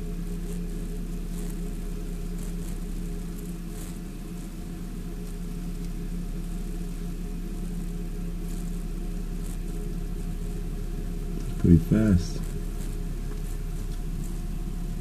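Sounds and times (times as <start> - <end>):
low mechanical hum: 0.0 - 15.0
faint soft ticks: 5.2 - 10.1, 12.4 - 14.4.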